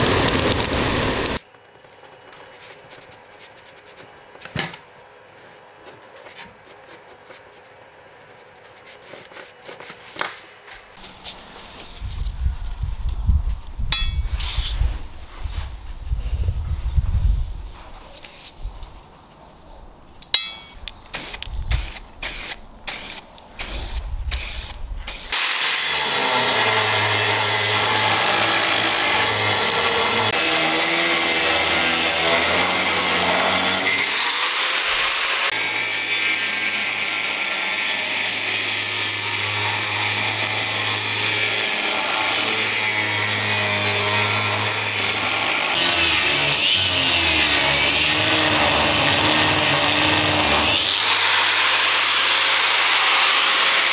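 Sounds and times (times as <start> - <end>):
angle grinder cutting steel: 0.0 - 1.4, 20.4 - 53.9.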